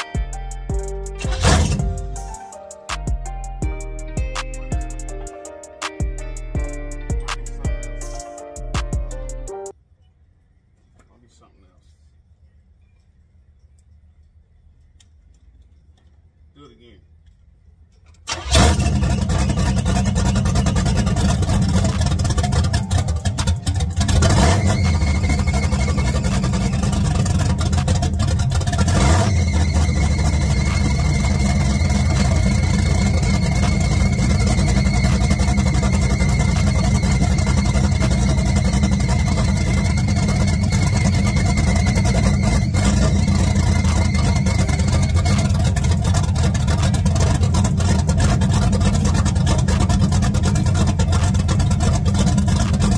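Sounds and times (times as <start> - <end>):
car engine running: 1.1 - 2.3, 18.3 - 52.9
thin high whine: 29.1 - 45.7.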